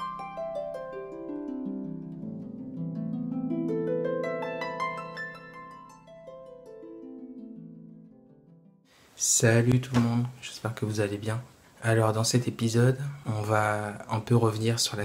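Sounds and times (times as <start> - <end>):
plucked string music: 0.0 - 8.8.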